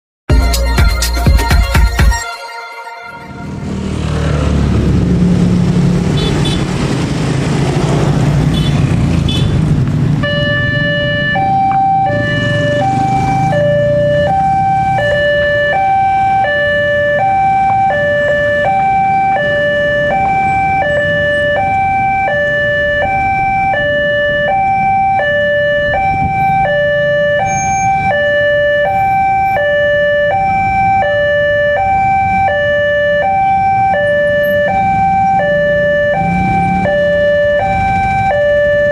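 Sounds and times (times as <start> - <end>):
motorcycle and traffic engines: 3.2 - 38.9
level crossing two-tone alarm: 10.2 - 38.9.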